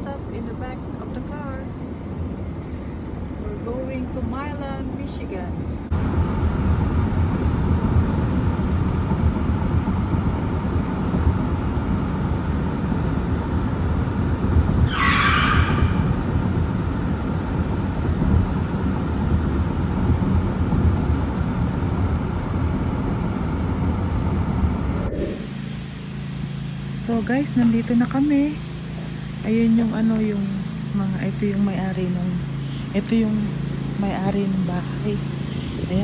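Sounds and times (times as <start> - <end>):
car cabin road and engine noise: 0.0 - 36.0
brief higher whoosh: 24.8 - 25.9.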